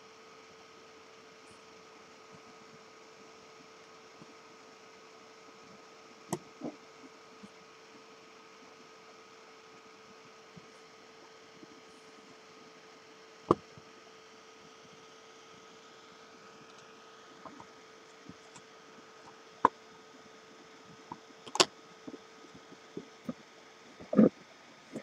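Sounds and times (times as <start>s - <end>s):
faint hum and whine: 0.0s - 25.0s
sharp clicks and knocks: 21.5s - 21.7s.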